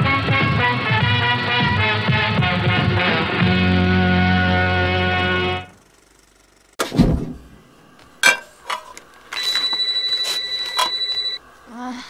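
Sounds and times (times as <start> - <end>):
electronic telephone ring: 9.4 - 11.4.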